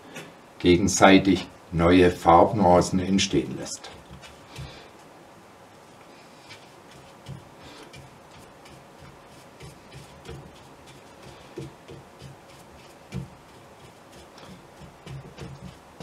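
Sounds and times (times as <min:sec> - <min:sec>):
bristles scratching: 0:03.2 - 0:05.1, 0:06.1 - 0:16.0
brush dabbing paint on canvas: 0:03.2 - 0:05.1, 0:06.1 - 0:16.0.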